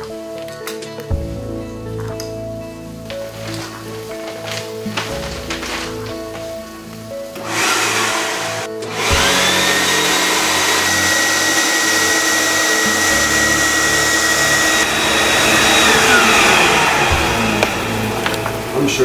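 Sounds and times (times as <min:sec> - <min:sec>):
vacuum motor whine: 0:07.4 - 0:19.0.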